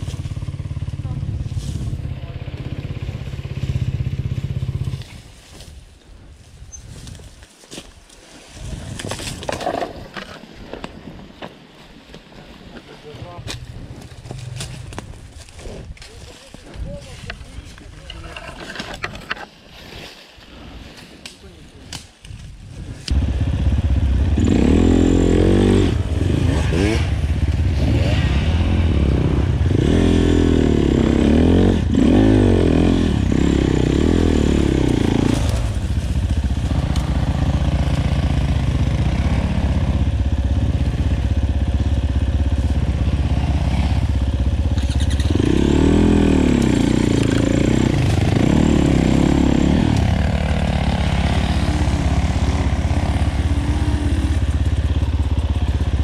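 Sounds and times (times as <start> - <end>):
motorcycle engine revving: 0.0 - 5.2, 23.1 - 56.0.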